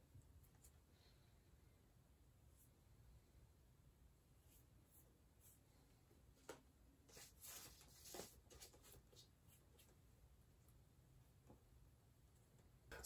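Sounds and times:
paintbrush strokes on canvas: 0:04.4 - 0:05.9, 0:07.1 - 0:10.0.

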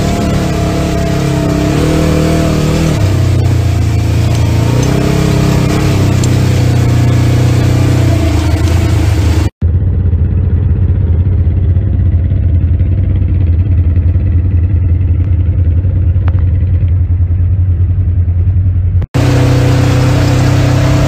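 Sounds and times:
utility vehicle engine running: 0:00.0 - 0:21.0.

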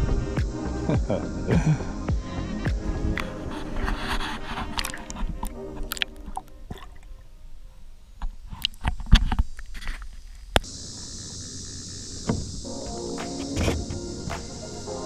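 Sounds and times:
steady high hiss: 0:00.0 - 0:15.0
water splashing: 0:03.2 - 0:07.6.

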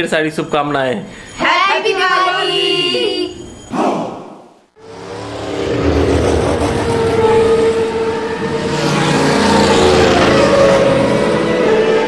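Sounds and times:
whoosh: 0:03.7 - 0:09.9.

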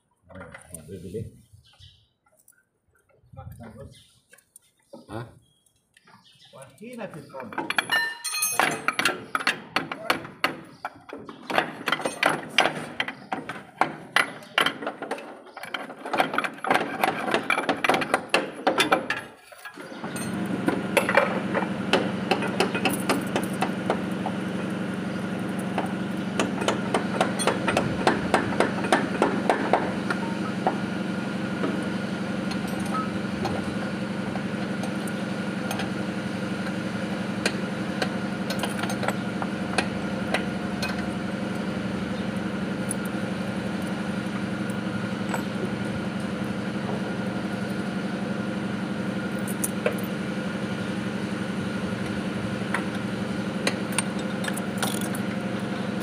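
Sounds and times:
steady machine hum: 0:19.9 - 0:56.0.

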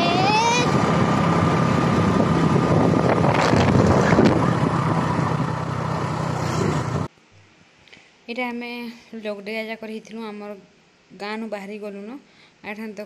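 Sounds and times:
low engine hum: 0:00.0 - 0:07.1
wind rushing over microphone: 0:00.0 - 0:07.1.

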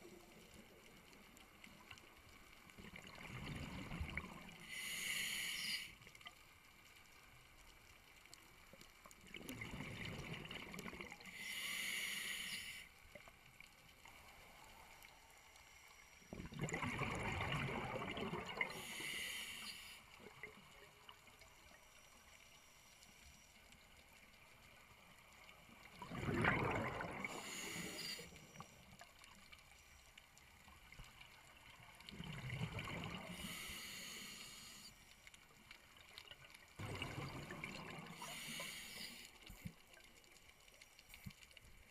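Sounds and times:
exhaled bubbles rushing: 0:16.4 - 0:18.8, 0:26.0 - 0:27.5, 0:32.1 - 0:33.3, 0:36.8 - 0:38.2
diver regulator hissing: 0:38.2 - 0:39.2.

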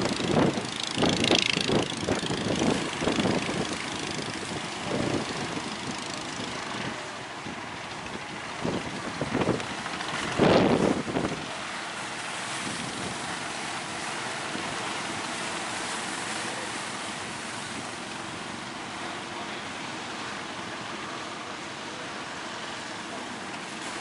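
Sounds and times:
wind buffeting microphone: 0:00.0 - 0:18.1
ocean surf breaking: 0:00.0 - 0:24.0.

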